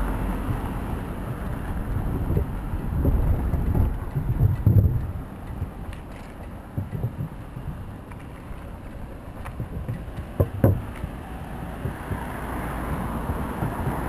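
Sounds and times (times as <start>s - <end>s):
wind rushing over microphone: 0.0s - 8.1s, 9.2s - 14.0s
bike rattling over trail: 0.0s - 14.0s
sharp knocks: 2.2s - 5.7s, 6.7s - 7.9s, 9.4s - 11.1s, 11.8s - 14.0s.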